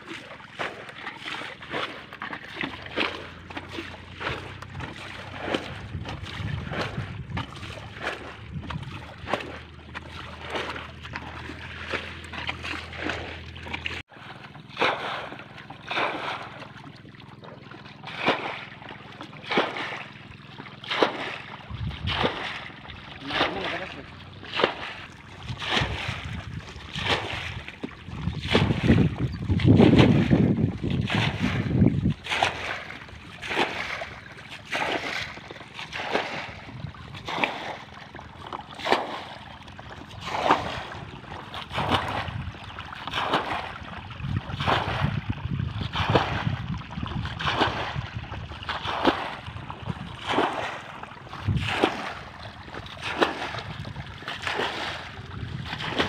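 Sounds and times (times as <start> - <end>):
muddy water splashing: 0.0 - 56.0
wind rumble on microphone: 4.1 - 12.3, 21.6 - 23.8, 24.7 - 34.2, 36.2 - 37.4, 40.0 - 52.4, 53.2 - 56.0.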